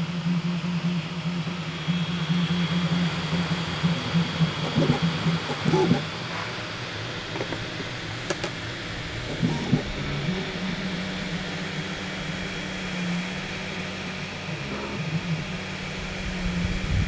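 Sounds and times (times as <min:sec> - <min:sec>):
cooling fans hissing: 0:00.0 - 0:17.0
stepper motors humming: 0:00.0 - 0:17.0.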